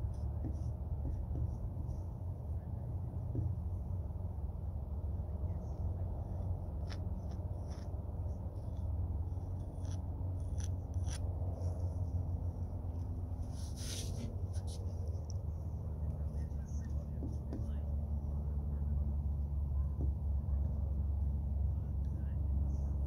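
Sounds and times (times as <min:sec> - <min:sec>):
paint scratching on canvas: 0:00.0 - 0:02.2, 0:05.7 - 0:12.2, 0:13.0 - 0:17.9
low outdoor rumble: 0:00.0 - 0:23.0.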